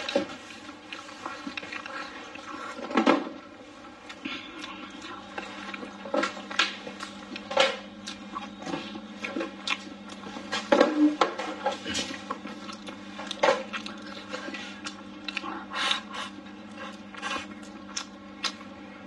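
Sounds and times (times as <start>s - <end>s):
faint steady hum: 0.0s - 19.0s
mouth smacking and chewing: 0.8s - 3.0s, 4.0s - 10.3s, 12.0s - 18.8s.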